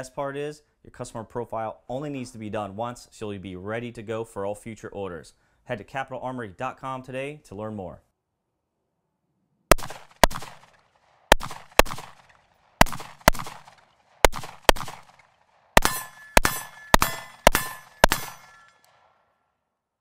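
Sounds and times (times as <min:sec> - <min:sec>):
rifle shots: 0:09.7 - 0:19.2
metallic ringing tone: 0:15.8 - 0:18.8.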